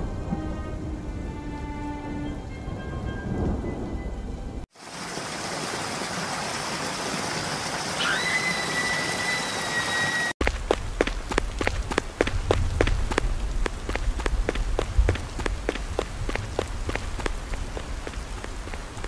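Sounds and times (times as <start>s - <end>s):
steady rain: 0.0s - 19.0s
thunder: 2.9s - 4.6s
shrill whistle: 8.0s - 10.4s
running footsteps: 10.4s - 19.0s.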